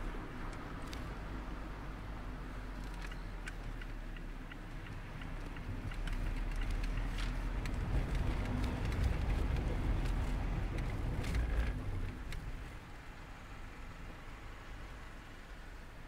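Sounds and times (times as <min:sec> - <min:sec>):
road and wind noise: 0:00.0 - 0:16.0
car engine running: 0:02.6 - 0:12.9
light clicks: 0:02.7 - 0:12.5.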